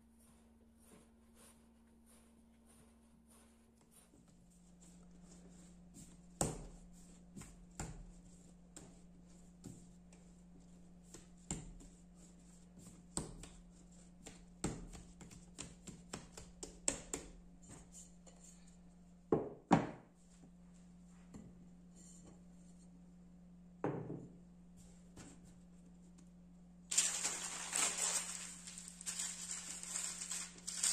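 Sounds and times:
dough thumps: 6.0 - 10.4, 11.0 - 12.1, 12.7 - 17.9
dough taps and slaps on wood: 6.3 - 10.3, 11.1 - 11.9, 12.8 - 17.9.

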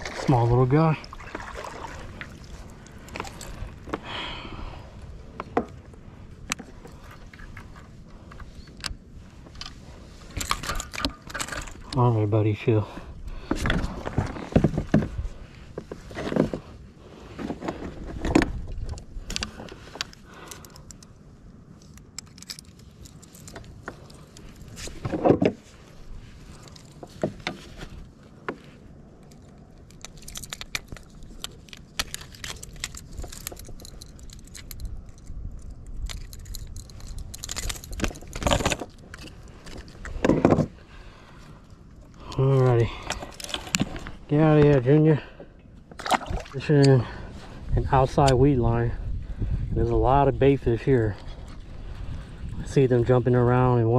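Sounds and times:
clicks and rattles on plastic kayak: 5.3 - 12.2, 13.4 - 21.1, 21.8 - 40.9, 41.5 - 45.0, 45.8 - 47.2.

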